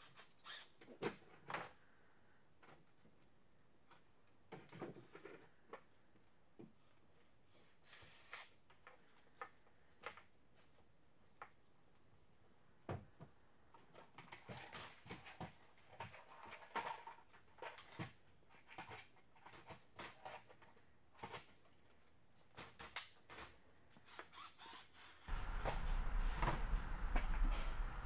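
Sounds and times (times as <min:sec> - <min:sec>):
loud steady noise with hum: 0:25.3 - 0:28.0.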